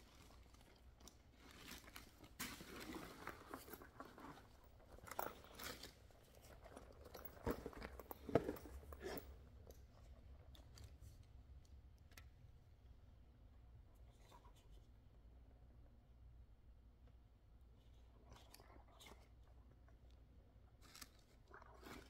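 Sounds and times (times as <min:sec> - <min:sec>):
leather bag handling: 0:00.0 - 0:09.4.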